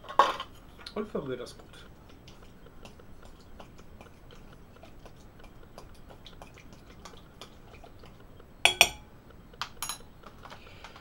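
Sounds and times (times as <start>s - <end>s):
wet squelching stirring: 0.5s - 11.0s
spoon clicking on glass: 8.7s - 9.1s.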